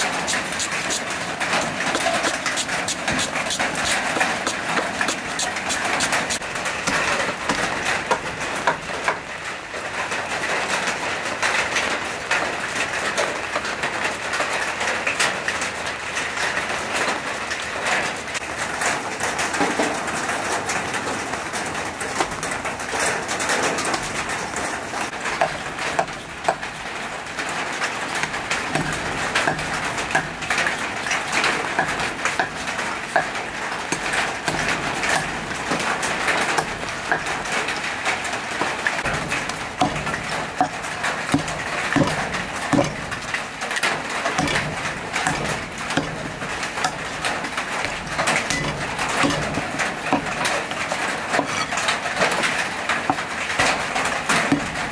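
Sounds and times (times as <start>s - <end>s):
cleaver chopping on wooden block: 0.0s - 8.8s, 28.2s - 30.7s, 33.2s - 35.8s, 39.0s - 43.1s, 44.4s - 47.0s, 47.8s - 50.4s
steady rain: 0.0s - 54.9s.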